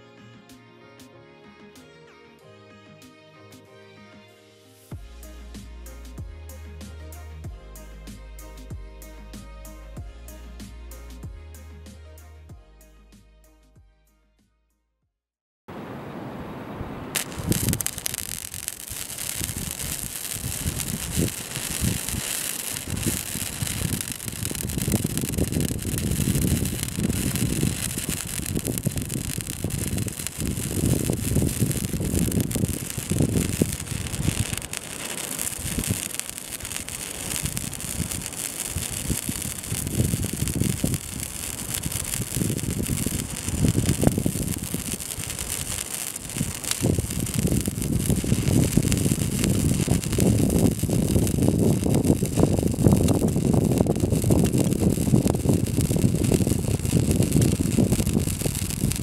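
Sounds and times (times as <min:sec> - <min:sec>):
welding arc sizzling: 0:17.2 - 0:59.0.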